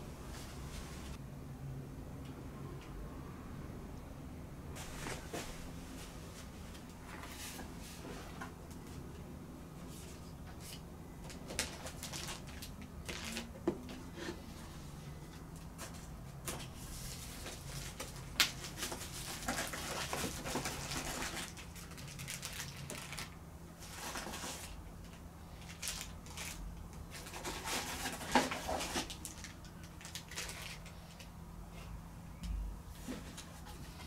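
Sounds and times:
plastic bags crinkling: 0:11.3 - 0:13.6, 0:17.2 - 0:24.8, 0:25.6 - 0:31.3.

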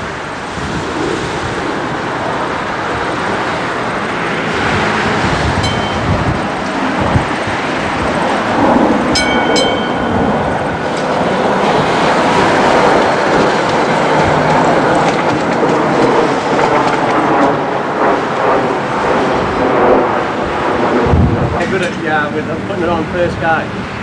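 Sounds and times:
tram wheels rumbling and clacking: 0:01.5 - 0:23.6
tram gong strikes: 0:04.6 - 0:15.2.

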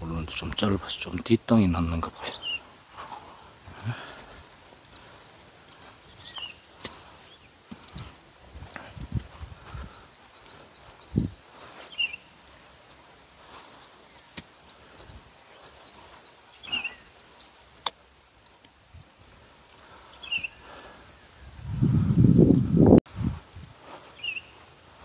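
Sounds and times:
high bird chirps: 0:03.8 - 0:08.9, 0:09.7 - 0:12.4, 0:15.4 - 0:17.7, 0:19.3 - 0:22.6
lower bird call: 0:15.4 - 0:17.6, 0:19.3 - 0:23.2.

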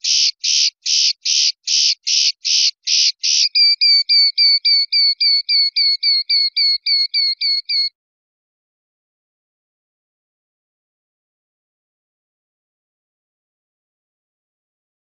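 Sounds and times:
linnet singing: 0:00.0 - 0:07.9.

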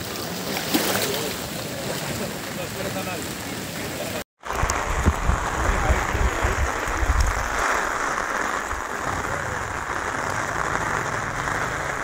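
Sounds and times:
steady rain falling: 0:01.1 - 0:12.0
wind buffeting microphone: 0:04.5 - 0:07.6.

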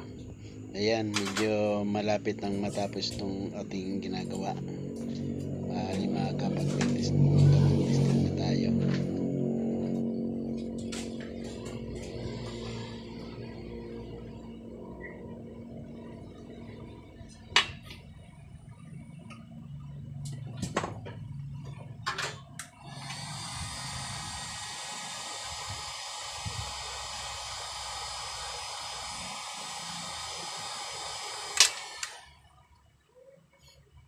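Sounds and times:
heat gun blowing: 0:22.8 - 0:32.3.

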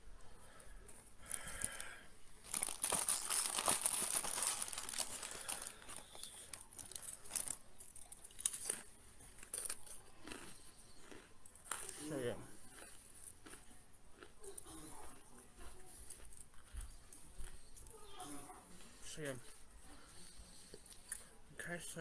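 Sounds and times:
wrapper crinkling and tearing: 0:01.6 - 0:08.7.

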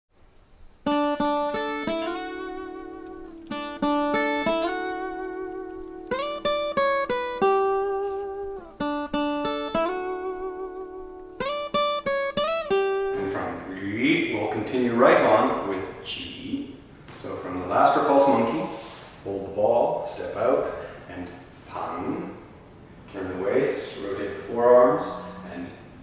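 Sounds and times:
plucked string instrument: 0:00.8 - 0:13.4.

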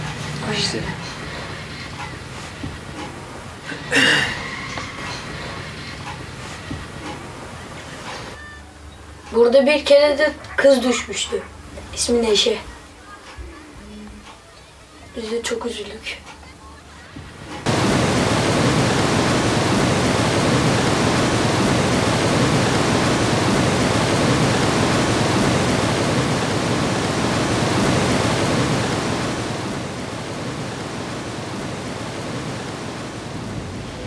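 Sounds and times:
river water rushing and churning: 0:17.7 - 0:34.0.

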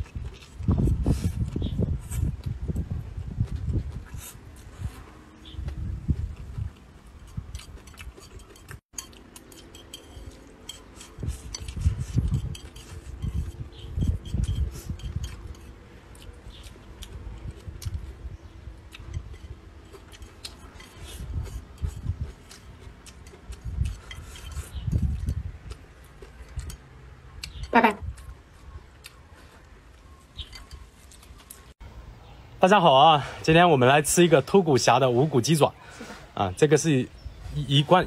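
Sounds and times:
close chewing: 0:00.0 - 0:31.8.

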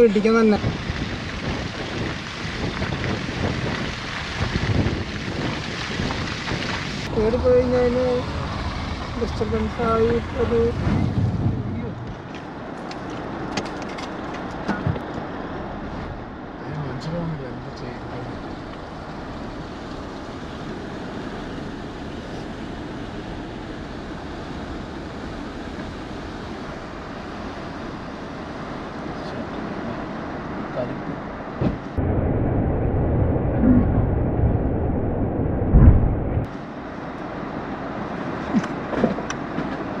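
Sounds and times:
tyre noise on dirt road: 0:00.0 - 0:16.5, 0:35.6 - 0:40.0
car engine rumble: 0:00.0 - 0:40.0
loud low thump: 0:31.6 - 0:36.5.

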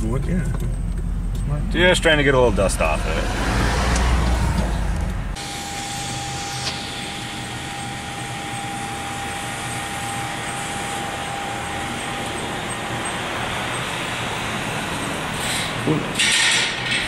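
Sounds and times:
fire engine driving slowly: 0:00.0 - 0:16.9
thin high whine: 0:03.9 - 0:16.3.

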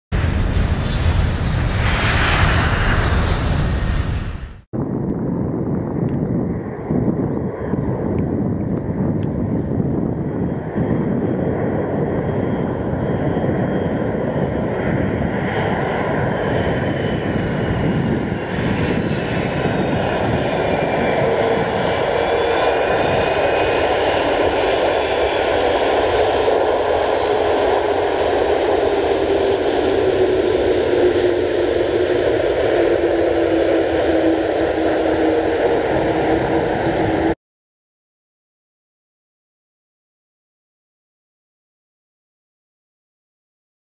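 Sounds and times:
jet engine noise: 0:00.1 - 0:37.4
whining engine tones: 0:28.4 - 0:37.4.

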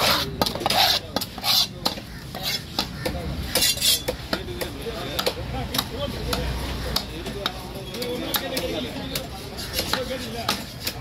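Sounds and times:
knife scraping on wood: 0:00.0 - 0:04.2, 0:09.6 - 0:11.0.

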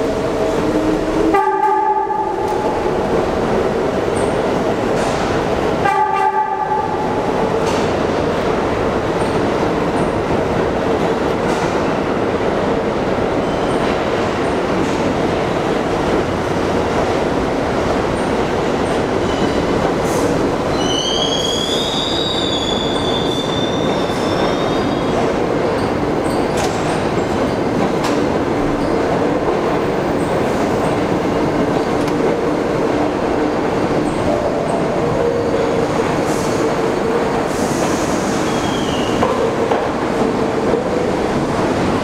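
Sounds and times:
subway train rumbling and clattering: 0:00.0 - 0:42.0
train horn: 0:01.2 - 0:02.4, 0:05.8 - 0:07.0.

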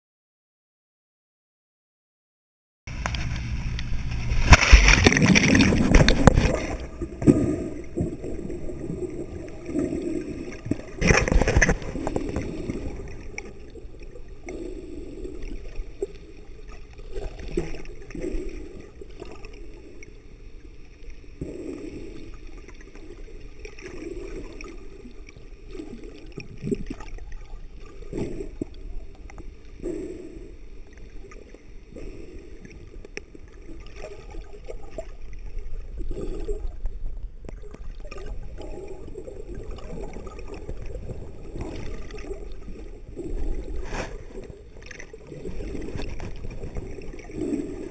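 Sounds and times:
rush of water: 0:02.9 - 0:14.2
underwater gurgling and sloshing: 0:02.9 - 0:47.9.

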